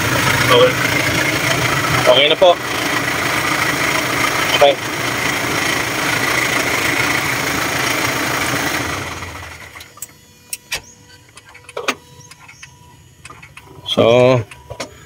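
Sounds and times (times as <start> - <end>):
diesel engine idling: 0.0 - 10.0.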